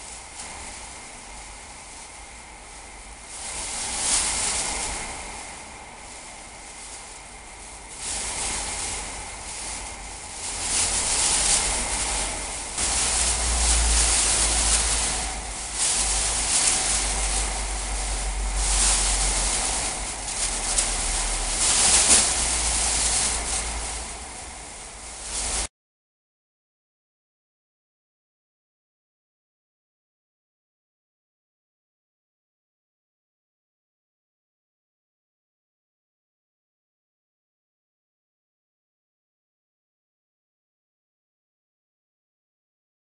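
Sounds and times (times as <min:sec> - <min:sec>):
plastic bags swishing through air: 0:00.0 - 0:25.7
low rumble: 0:00.1 - 0:25.7.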